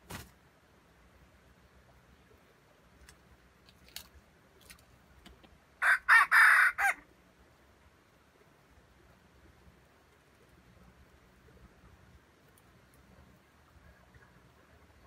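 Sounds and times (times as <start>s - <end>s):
rooster crowing: 5.8s - 7.0s.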